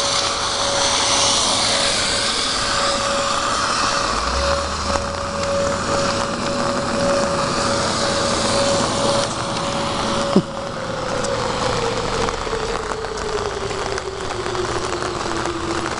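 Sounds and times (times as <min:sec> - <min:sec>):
rain: 0:00.0 - 0:15.9
tornado warning siren: 0:00.0 - 0:15.9
wind: 0:00.0 - 0:15.9.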